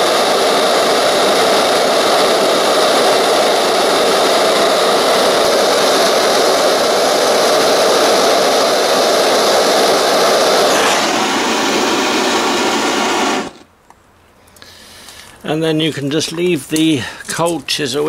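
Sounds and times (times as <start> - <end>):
gas torch flame rushing: 0.0 - 13.7.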